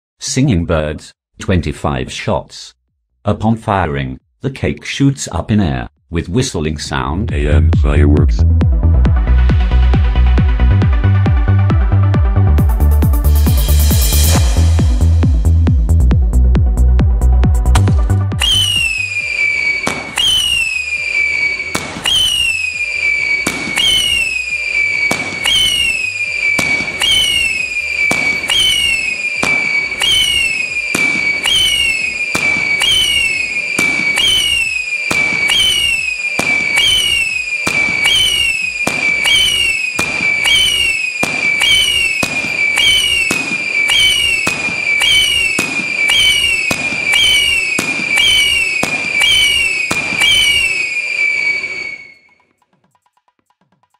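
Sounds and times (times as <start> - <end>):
descending firework whistle: 13.4 - 15.1, 17.7 - 52.6
firework pops: 19.8 - 20.8, 21.7 - 52.0.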